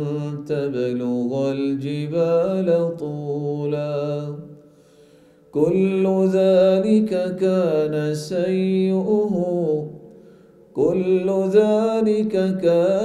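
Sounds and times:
man chanting melodically: 10.8s - 13.0s.

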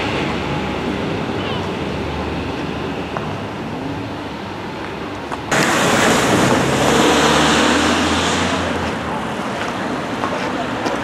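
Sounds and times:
train passing close by: 0.0s - 11.0s.

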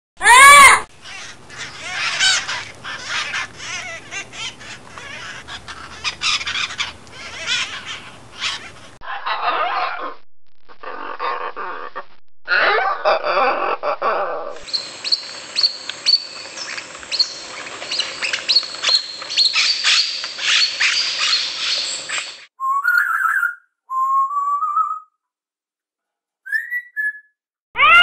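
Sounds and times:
muffled parrot calls: 0.2s - 10.2s, 10.8s - 22.3s, 27.8s - 28.0s
parrots squawking and screeching: 0.2s - 10.2s, 12.5s - 22.4s, 27.8s - 28.0s.

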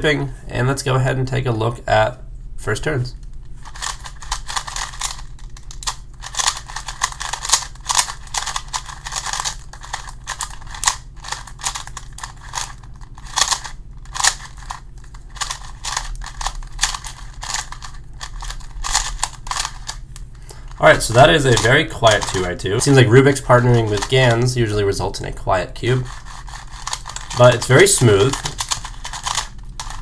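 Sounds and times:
puzzle cube clicking as turned: 3.6s - 20.0s, 21.5s - 22.4s, 26.1s - 30.0s.

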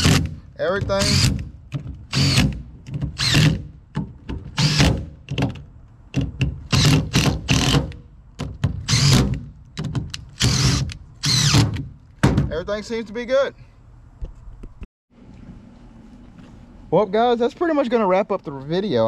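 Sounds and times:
cordless drill bursts: 1.0s - 1.4s, 2.1s - 2.6s, 3.2s - 3.6s, 4.6s - 4.9s, 8.9s - 9.2s, 10.4s - 11.6s.

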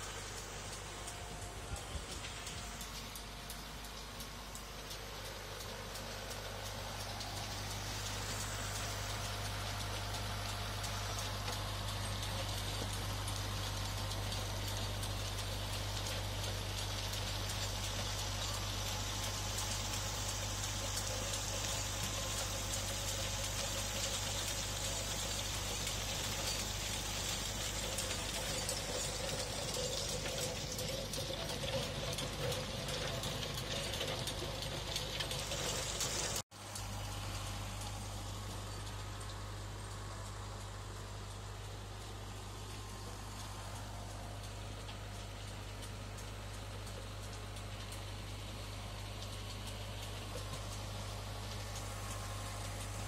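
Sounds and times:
tractor engine running: 0.0s - 53.0s
rotary tiller churning soil: 14.2s - 36.4s.

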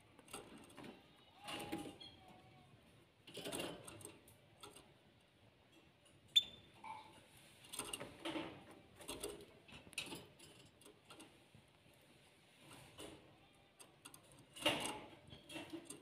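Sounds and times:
birds pecking and tapping: 0.1s - 2.2s, 13.8s - 16.0s.

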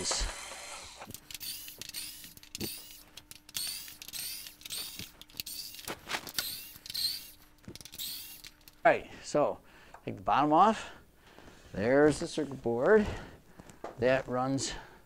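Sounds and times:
screws squeaking in plastic: 1.0s - 8.7s.

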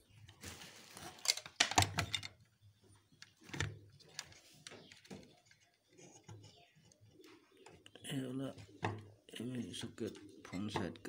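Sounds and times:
hands handling circuit board: 1.0s - 2.4s.

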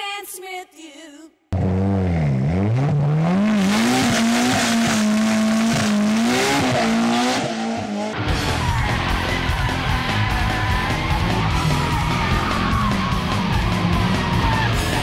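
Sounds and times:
car engine revving hard: 1.6s - 15.0s
tyres squealing and skidding: 7.7s - 15.0s.

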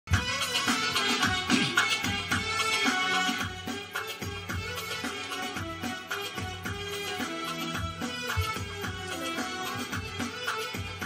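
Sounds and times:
steady drum beat: 0.1s - 11.0s.

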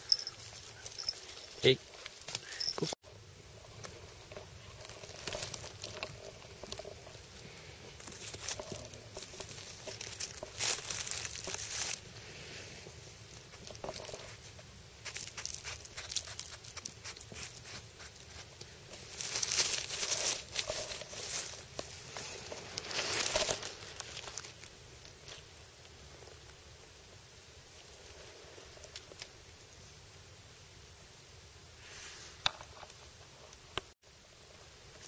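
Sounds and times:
dry leaves rustling and crinkling: 3.6s - 26.6s.

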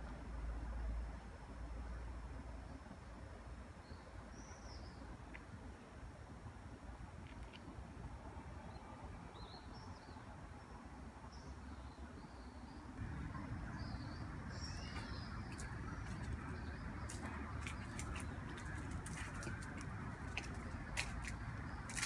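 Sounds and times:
birds chirping faintly: 8.6s - 22.0s
low steady rumble: 13.0s - 22.0s.

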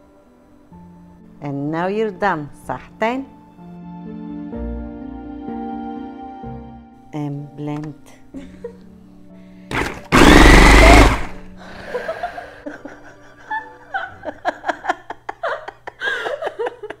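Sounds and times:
woman laughing: 8.3s - 8.8s, 11.9s - 17.0s
food processor motor running: 9.7s - 11.4s.

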